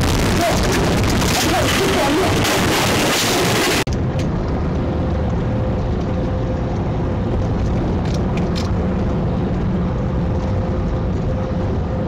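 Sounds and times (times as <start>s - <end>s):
faint steady hum: 3.5s - 12.0s.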